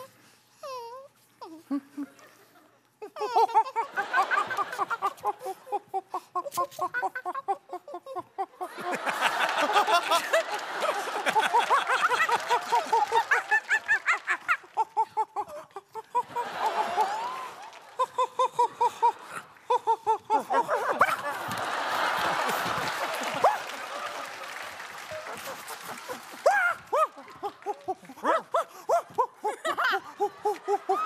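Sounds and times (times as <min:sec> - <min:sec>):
audience laughter: 0:03.4 - 0:31.0
people hooting like monkeys: 0:08.6 - 0:31.0.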